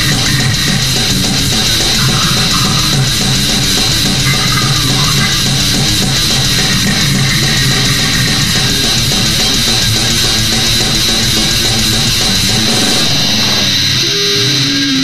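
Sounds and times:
distorted electric guitars: 0.0 - 15.0
fast drumming: 0.0 - 15.0.

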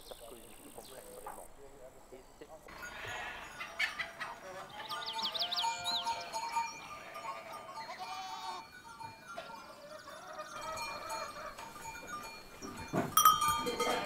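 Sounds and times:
goats bleating: 2.7 - 8.6.

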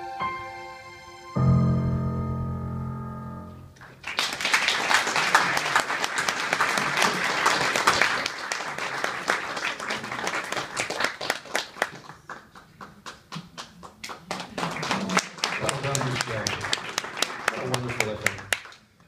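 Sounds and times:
digital piano chord: 0.0 - 3.7
audience applauding: 3.8 - 19.0.

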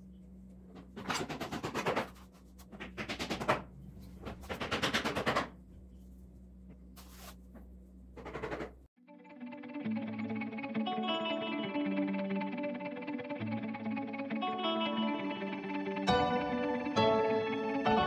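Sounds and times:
low steady hum: 0.0 - 1.2, 5.5 - 8.9
ticking and scraping of powder sifting: 5.8 - 7.8.

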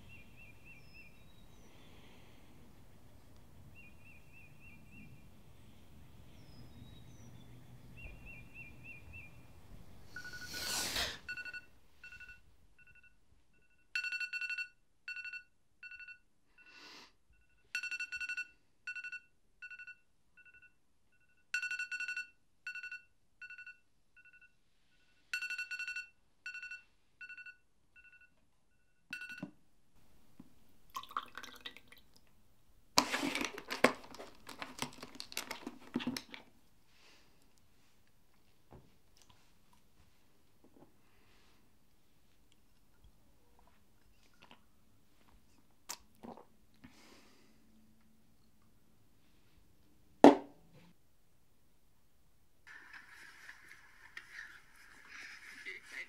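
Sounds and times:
phone alarm beeping: 10.1 - 16.7, 17.4 - 24.6, 25.3 - 29.6.

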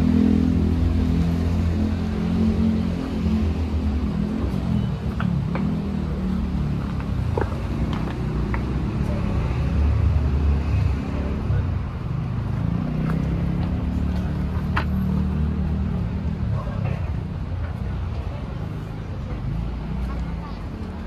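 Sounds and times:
car engines running: 0.0 - 21.0.

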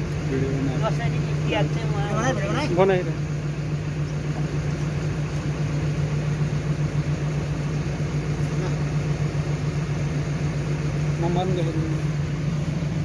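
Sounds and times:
diesel engine idling: 0.0 - 13.0.

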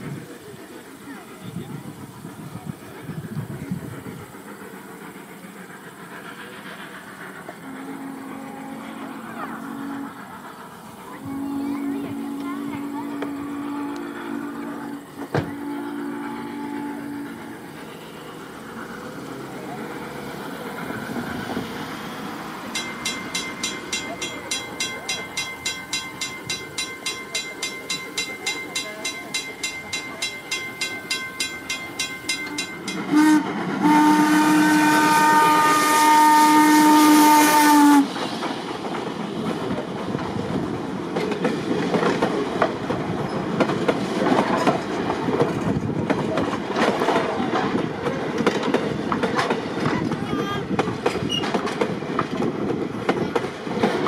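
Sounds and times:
steam locomotive chuffing: 0.0 - 54.0
train wheel clatter: 0.0 - 54.0
steam whistle: 7.6 - 10.3, 11.2 - 17.7, 32.4 - 38.1.

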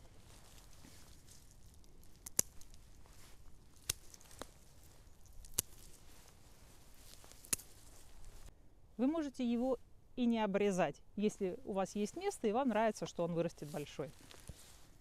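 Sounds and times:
pruning shears snipping: 1.9 - 3.0, 3.7 - 6.1, 7.1 - 8.3.

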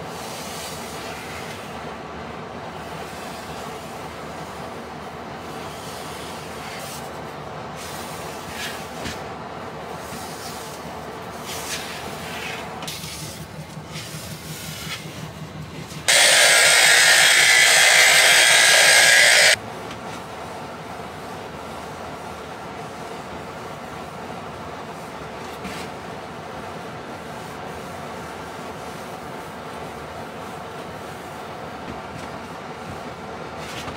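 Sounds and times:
orbital sander hissing: 16.1 - 19.6.

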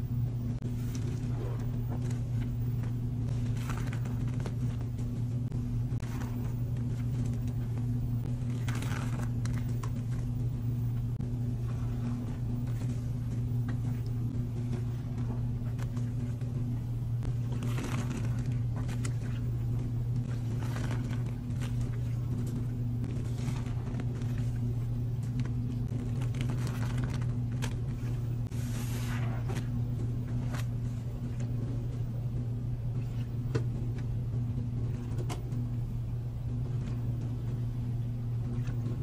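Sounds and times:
washing machine motor hum: 0.0 - 39.0
sponge squelching in water: 0.6 - 10.6, 11.2 - 34.0.

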